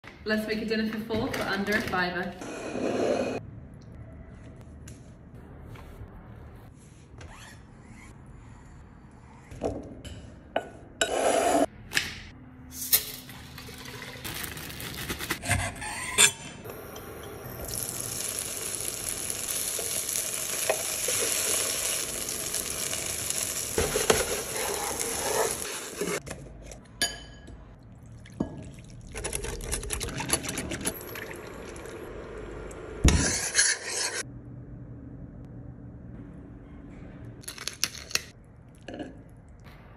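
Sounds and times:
tofu sizzling in a pan: 0:17.7 - 0:23.8.

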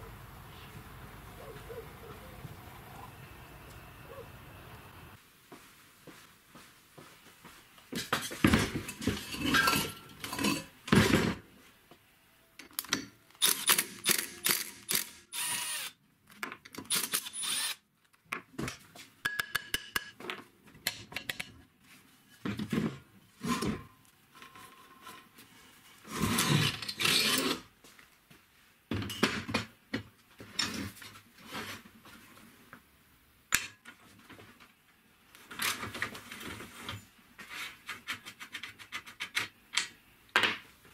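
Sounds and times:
metal clanking and scraping: 0:08.5 - 0:11.4.

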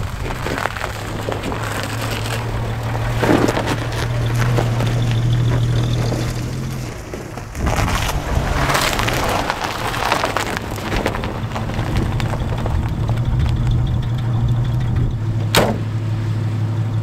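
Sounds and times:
tyres crunching on snow: 0:00.0 - 0:16.6
car engine running: 0:00.0 - 0:17.0.

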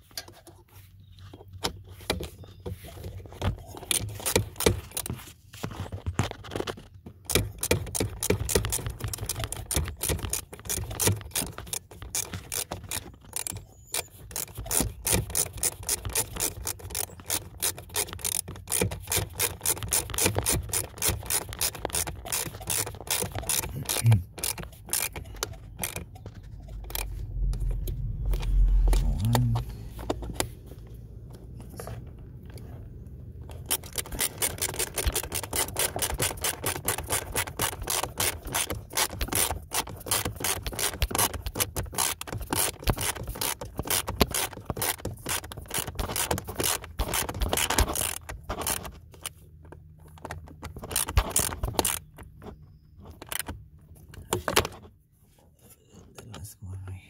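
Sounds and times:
socket ratchet clicking: 0:07.3 - 0:27.7.

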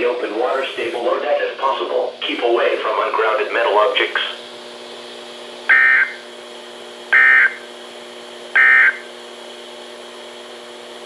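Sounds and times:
steady low radio hum: 0:00.0 - 0:07.8, 0:08.5 - 0:09.2
buzzy data tone bursts: 0:05.7 - 0:06.2, 0:07.1 - 0:07.6, 0:08.6 - 0:09.1.

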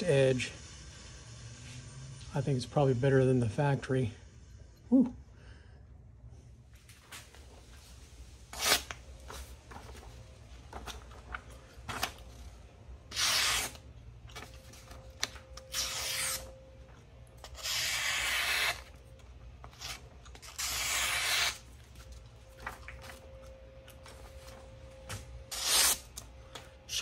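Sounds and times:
knife slicing paper: 0:08.5 - 0:08.9, 0:13.1 - 0:16.5, 0:17.4 - 0:18.9, 0:19.6 - 0:21.7, 0:25.5 - 0:26.1
paper rustling: 0:08.6 - 0:12.3, 0:21.4 - 0:23.4.

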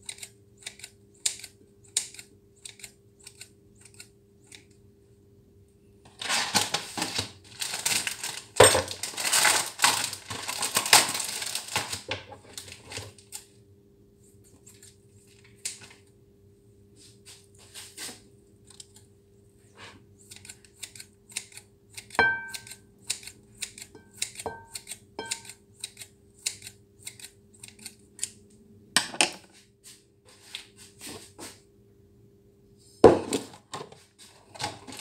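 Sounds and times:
scissors snipping: 0:00.0 - 0:04.8, 0:20.2 - 0:28.4.

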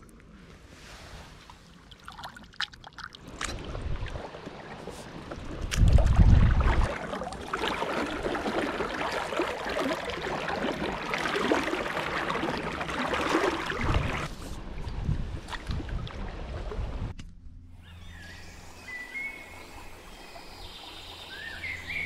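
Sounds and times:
paddle strokes in water: 0:00.6 - 0:17.0
water rushing and splashing: 0:00.8 - 0:17.1.

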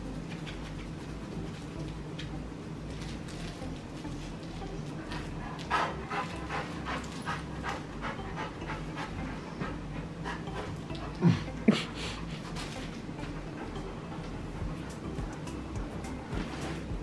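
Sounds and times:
dog panting: 0:05.1 - 0:15.5.

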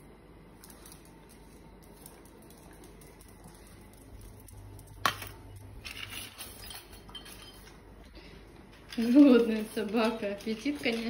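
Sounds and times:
metal dog bowl clinking: 0:06.0 - 0:07.8.

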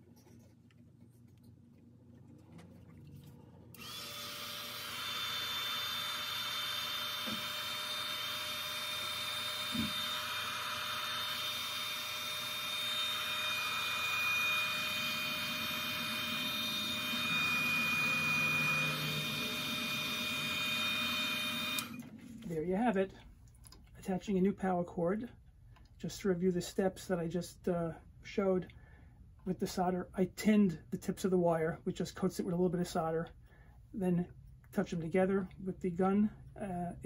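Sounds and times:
hot air gun fan whine: 0:03.7 - 0:22.6.

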